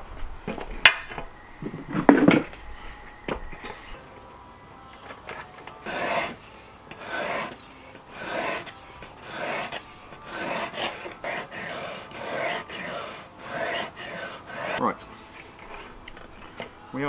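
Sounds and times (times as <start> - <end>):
whetstone rasping on knife edge: 5.8 - 14.8.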